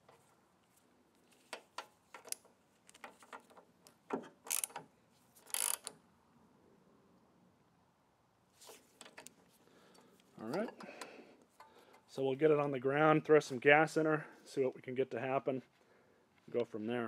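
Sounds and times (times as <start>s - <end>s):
metal tool clicks: 1.5s - 6.0s
socket wrench ratchet clicking: 4.5s - 4.8s, 5.4s - 6.0s.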